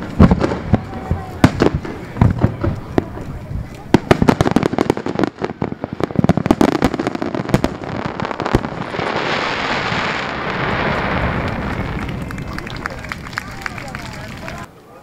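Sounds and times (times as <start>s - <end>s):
fireworks bangs: 0.0s - 14.7s
fireworks crackling hiss: 0.0s - 14.7s.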